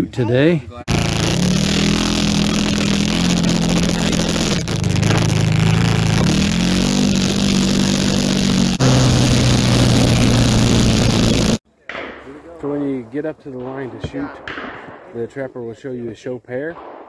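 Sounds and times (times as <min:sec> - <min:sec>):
atv engine running: 0:00.9 - 0:11.6.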